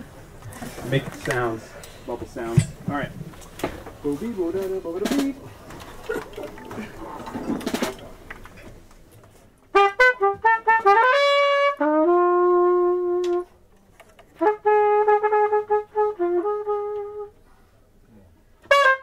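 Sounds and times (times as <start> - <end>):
room murmur: 0.0 - 9.8
cornet playing: 9.7 - 13.7, 14.3 - 17.4, 18.6 - 19.0.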